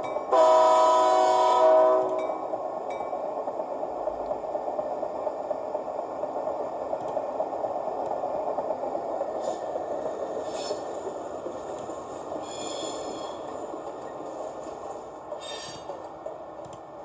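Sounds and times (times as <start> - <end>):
rattling rumble of rail car: 0.0 - 17.0
faint high squeaks: 15.4 - 16.0.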